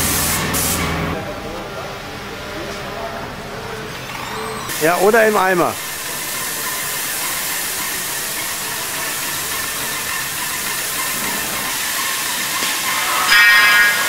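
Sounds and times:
spray gun hissing: 0:00.0 - 0:01.0, 0:04.7 - 0:14.0.

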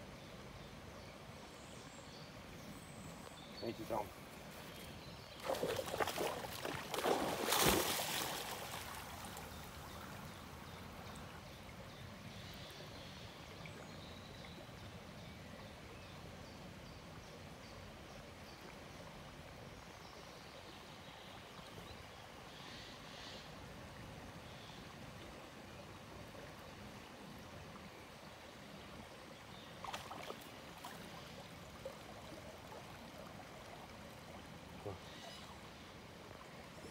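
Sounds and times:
water washing as dog swims: 0:05.4 - 0:09.6
dog splashing into river: 0:05.4 - 0:09.7.

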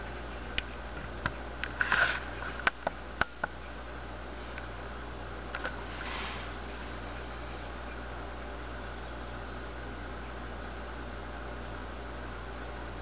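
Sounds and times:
steady hiss and low hum: 0:00.0 - 0:13.0
short rustle: 0:05.8 - 0:07.0.

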